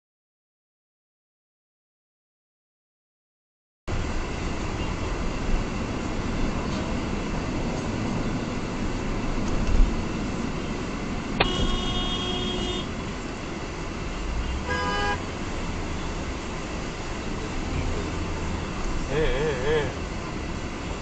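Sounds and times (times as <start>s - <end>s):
road noise inside moving car: 3.9s - 21.0s
car horn honking: 11.4s - 13.0s, 14.4s - 15.3s.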